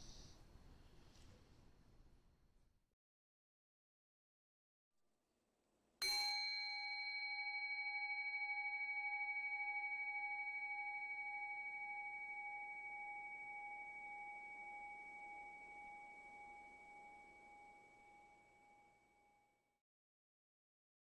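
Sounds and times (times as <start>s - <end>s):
bowl bell ringing: 6.0s - 19.4s.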